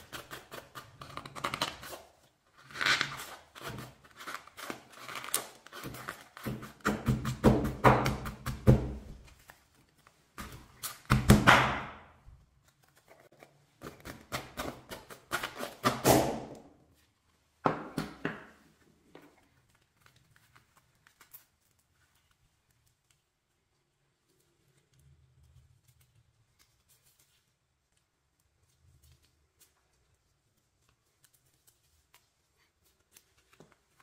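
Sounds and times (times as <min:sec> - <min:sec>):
pestle pounding in stone mortar: 0:06.4 - 0:09.0
faint handling sounds: 0:09.1 - 0:11.0, 0:12.2 - 0:14.1, 0:18.5 - 0:34.0.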